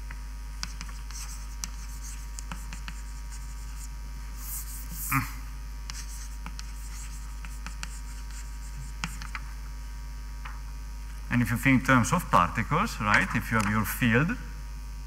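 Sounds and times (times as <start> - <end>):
low mains hum: 0.0 - 15.0
writing on a board: 0.6 - 5.3, 5.9 - 9.5.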